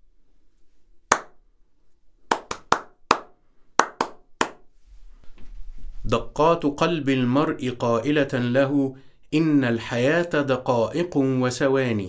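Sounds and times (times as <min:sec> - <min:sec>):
hand claps: 0:01.1 - 0:01.4, 0:02.3 - 0:04.7.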